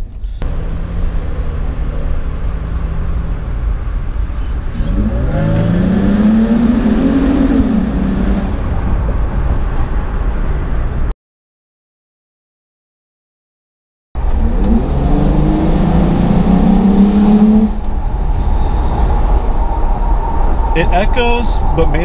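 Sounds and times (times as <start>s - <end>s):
car engine revving hard: 0.4s - 8.8s, 14.4s - 17.9s.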